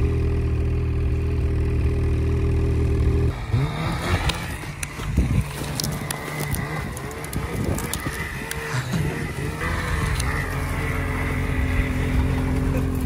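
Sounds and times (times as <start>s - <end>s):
snowmobile engine revving: 0.0s - 13.0s
short crackles: 3.9s - 13.0s.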